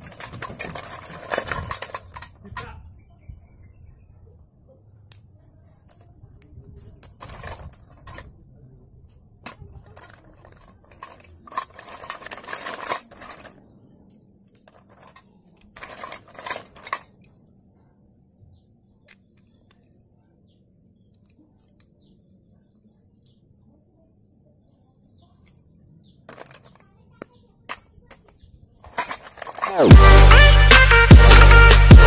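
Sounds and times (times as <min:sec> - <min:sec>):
pencils rattling in steel bowl: 0:00.0 - 0:02.4, 0:07.2 - 0:08.2, 0:09.4 - 0:13.6, 0:14.7 - 0:17.1, 0:28.8 - 0:29.9.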